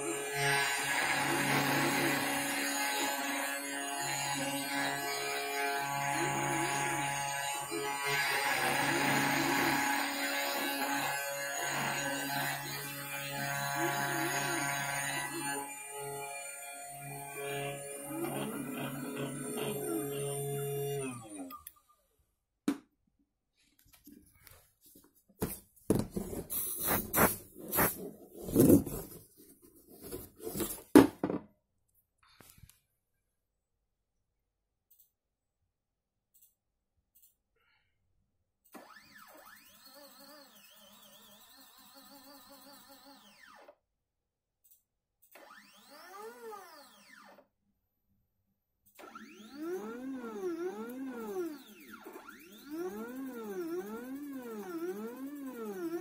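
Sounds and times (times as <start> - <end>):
router bit scraping wood: 0.0 - 21.5, 26.0 - 30.9, 49.2 - 56.0
stepper motors whining: 49.0 - 56.0.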